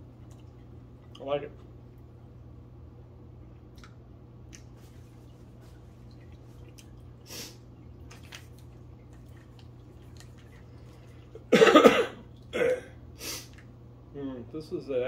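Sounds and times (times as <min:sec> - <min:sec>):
man coughing: 0:11.4 - 0:13.0.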